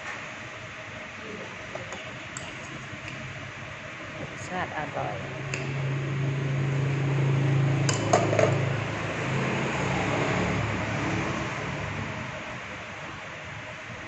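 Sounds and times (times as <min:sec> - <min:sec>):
low hum and hiss: 0:00.0 - 0:09.8.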